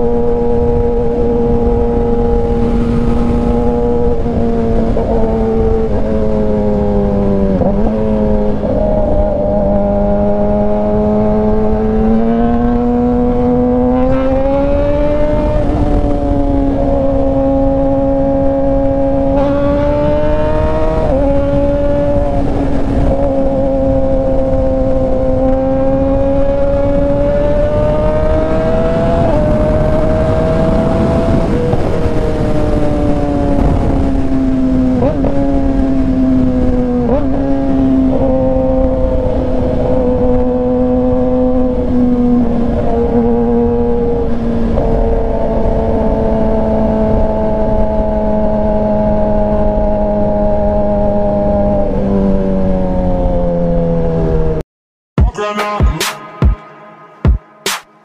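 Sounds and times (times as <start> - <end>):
motorcycle engine running: 0.0 - 14.4
wind rush: 0.0 - 54.4.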